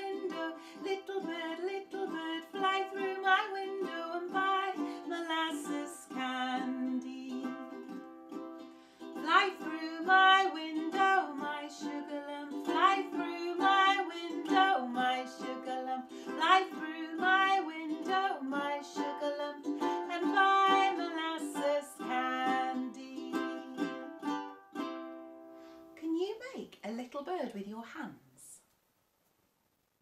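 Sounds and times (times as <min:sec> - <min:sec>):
woman singing: 0:00.0 - 0:08.0, 0:09.1 - 0:24.2
ukulele strumming: 0:00.0 - 0:25.8.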